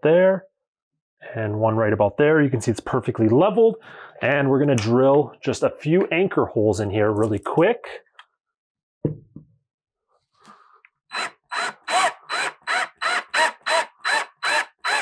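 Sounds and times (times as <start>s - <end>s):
cordless drill in short bursts: 11.1s - 15.0s.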